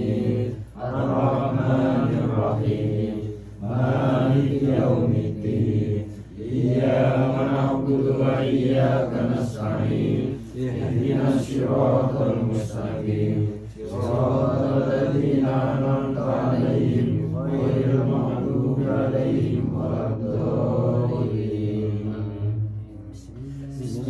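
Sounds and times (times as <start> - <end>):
men chanting in unison: 0.0 - 24.0.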